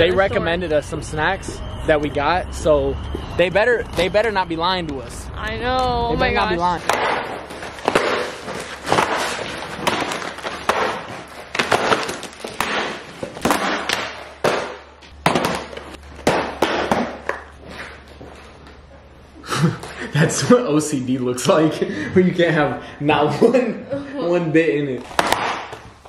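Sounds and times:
boxes knocking on countertop: 6.9s - 17.5s
packaging crinkling: 7.4s - 13.6s.

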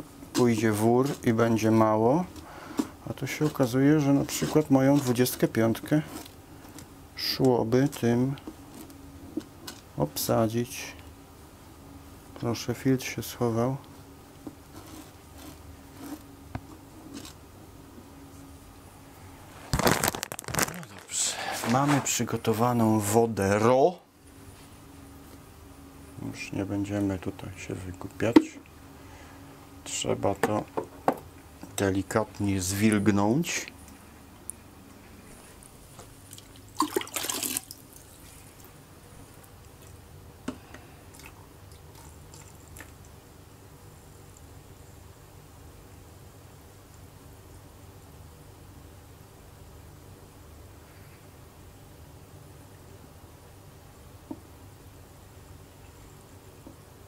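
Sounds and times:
fingers rustling granules: 0.3s - 6.9s, 14.7s - 17.4s, 19.4s - 22.1s
water trickling into aquarium: 36.3s - 38.4s, 41.1s - 43.1s.

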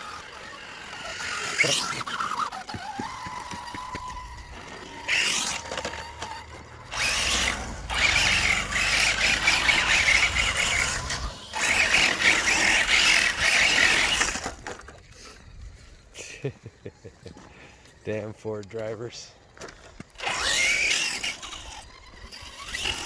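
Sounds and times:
electric motor whining: 0.0s - 14.9s, 20.1s - 23.0s
tyres scrabbling over gravel: 0.1s - 15.4s, 19.1s - 23.0s.

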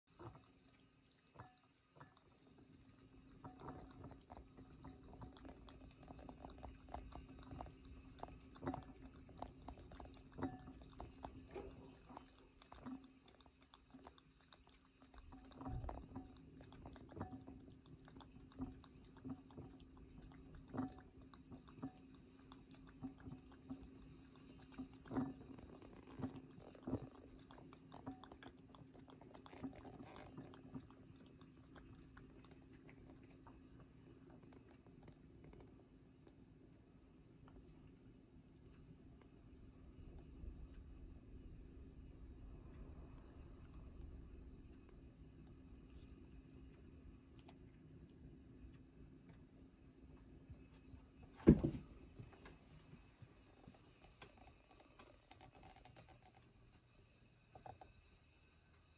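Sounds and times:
cat lapping water: 0.0s - 58.9s.

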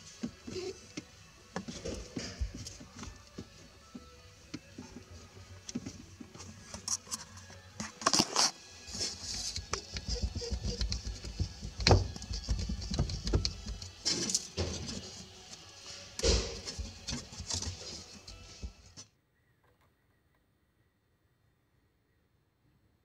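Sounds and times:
clicks and scraping on metal: 0.1s - 19.0s
metal clunks: 16.2s - 17.6s.

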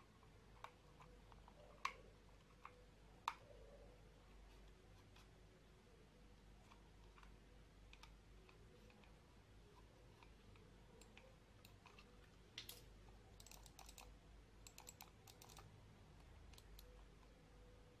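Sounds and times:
computer mouse clicks: 0.5s - 3.5s, 6.6s - 9.2s, 9.8s - 17.3s.

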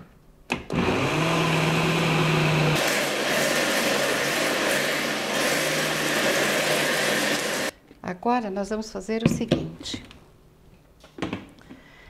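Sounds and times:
blender running: 0.7s - 7.8s.

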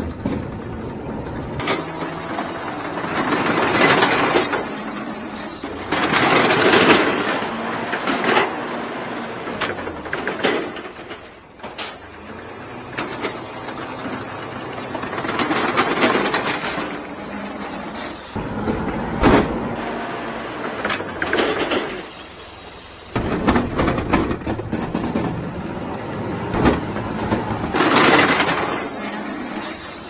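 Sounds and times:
metal knocks and clanks: 0.0s - 8.7s, 23.1s - 29.7s
lift mechanism running: 0.0s - 30.0s
truck engine hum: 0.0s - 30.0s.

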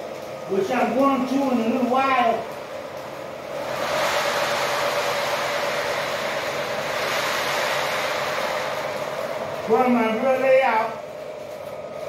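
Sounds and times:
model train wheels rolling on rail: 0.0s - 12.0s.

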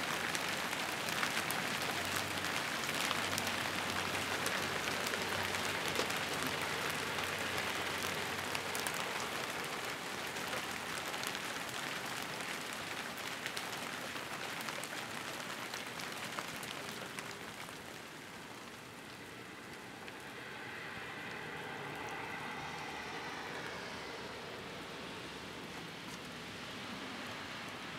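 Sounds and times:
hail pattering on roofs: 0.0s - 19.8s.

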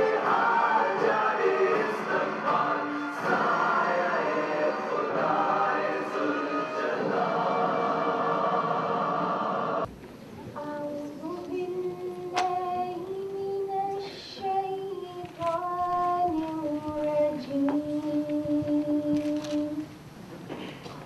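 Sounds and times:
woman singing unaccompanied: 10.6s - 19.9s.

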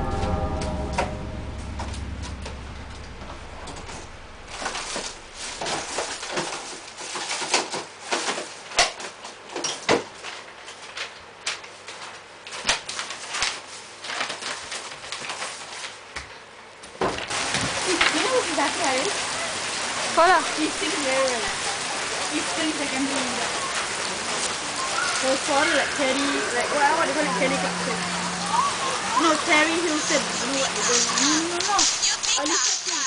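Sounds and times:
low drone: 0.0s - 6.7s, 25.8s - 32.1s.

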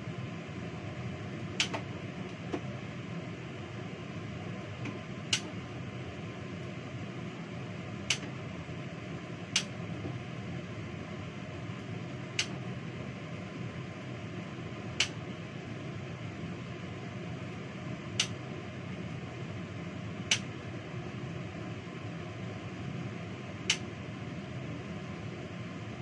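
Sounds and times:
kitchen exhaust fan humming: 0.0s - 26.0s.

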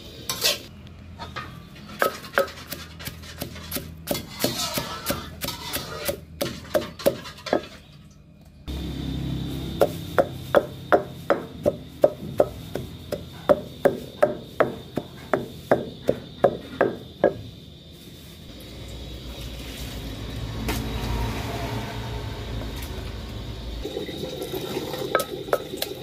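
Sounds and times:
pestle pounding in mortar: 2.0s - 7.6s, 9.8s - 17.4s.

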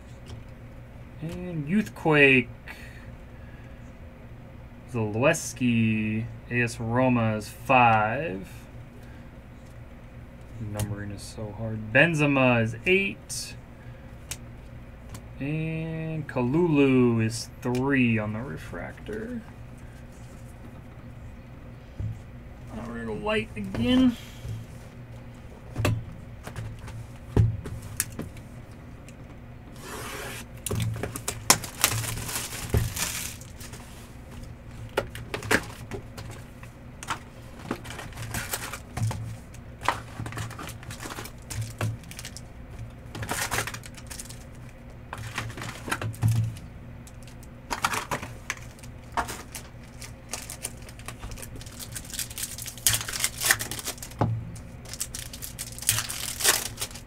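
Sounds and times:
wrappers tearing and crinkling: 29.8s - 33.9s, 37.8s - 42.4s, 43.2s - 57.0s.

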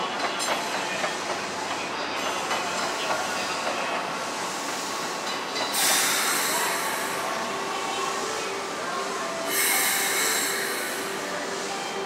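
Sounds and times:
train rumble: 0.0s - 12.0s
loud hiss: 5.7s - 7.5s, 9.5s - 11.6s.

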